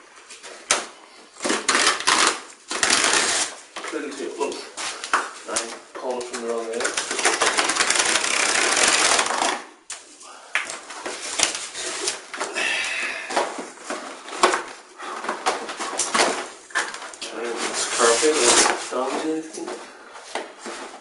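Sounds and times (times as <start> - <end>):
cardboard tearing: 1.4 - 3.6, 6.8 - 9.7
cardboard rustling and scraping: 10.9 - 12.4, 13.5 - 19.5.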